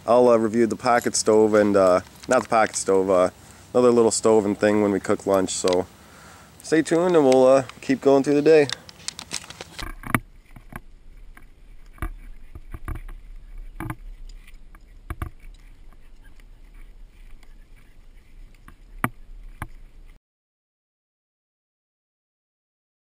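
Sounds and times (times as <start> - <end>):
footsteps on dirt trail: 0.0 - 20.2
dog walking on a leash: 0.2 - 5.8, 11.2 - 20.2
low steady rumble: 9.1 - 20.2.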